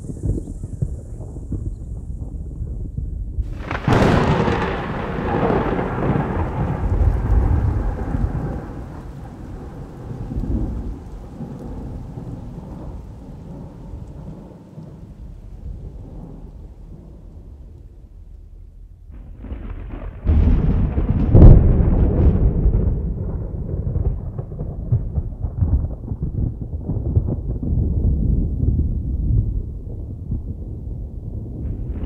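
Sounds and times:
rain falling: 0.0s - 32.0s
thunder clap and rumble: 0.0s - 32.0s.

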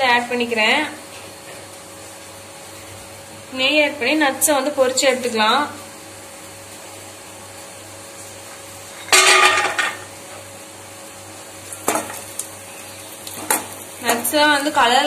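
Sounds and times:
nuts clattering in metal pan: 9.1s - 10.1s.

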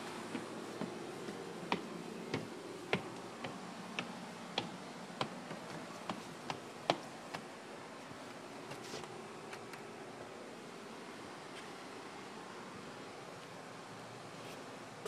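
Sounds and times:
faint steady hum: 0.0s - 15.0s
footsteps on wooden boards: 0.1s - 10.4s.

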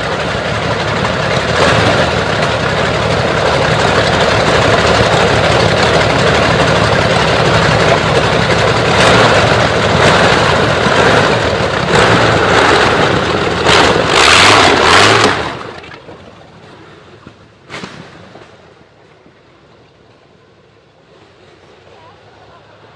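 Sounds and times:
aircraft engine running unevenly: 0.0s - 17.3s.

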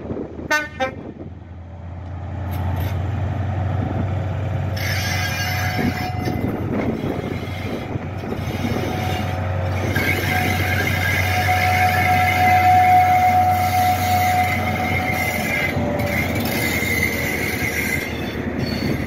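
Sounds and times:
train diesel engine hum: 0.0s - 19.0s.

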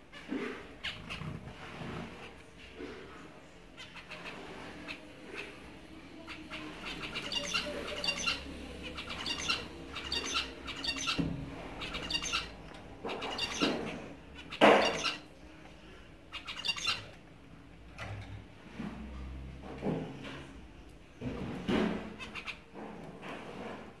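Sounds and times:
finches calling: 6.3s - 11.2s, 11.8s - 15.2s, 16.3s - 17.1s.

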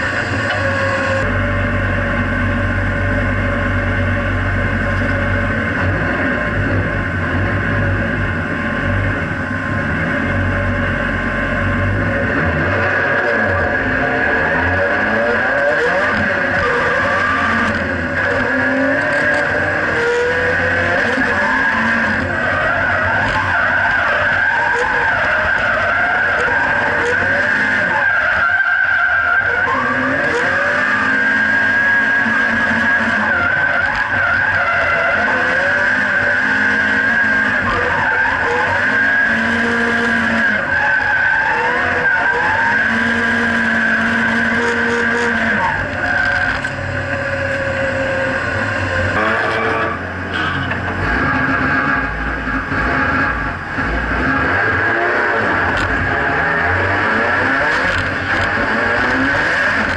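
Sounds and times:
tyre squeal: 0.0s - 1.4s, 12.9s - 52.2s
car engine revving: 0.0s - 59.9s.

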